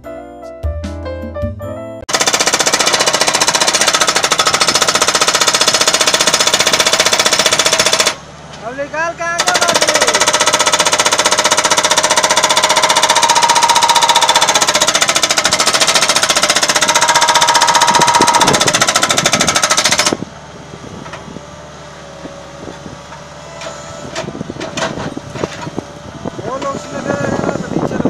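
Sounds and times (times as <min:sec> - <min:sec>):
hydraulic breaker hammering concrete: 0:02.1 - 0:08.2, 0:09.3 - 0:20.2
loader engine running: 0:02.1 - 0:28.0.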